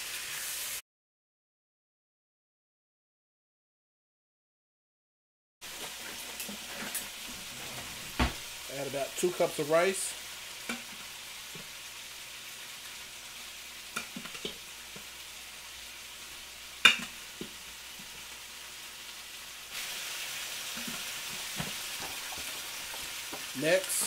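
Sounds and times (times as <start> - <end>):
rice sizzling in a wok: 0.0 - 0.8, 5.6 - 24.0
spatula scraping and knocking pan: 20.7 - 24.0.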